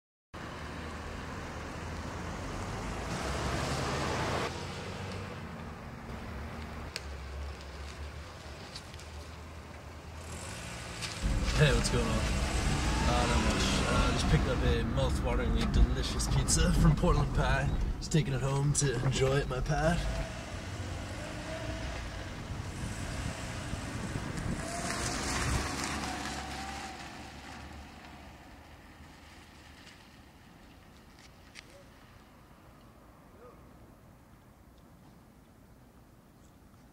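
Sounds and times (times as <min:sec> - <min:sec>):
car engine humming: 0:09.5 - 0:29.4
rushing noise: 0:11.2 - 0:18.4.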